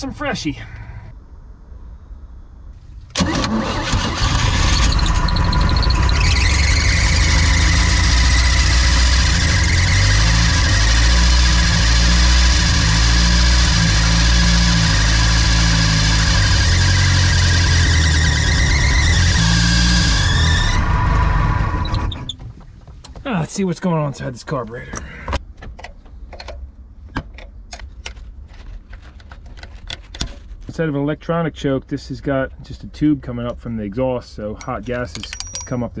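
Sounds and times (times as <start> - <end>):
high squealing whine: 3.2 - 22.4.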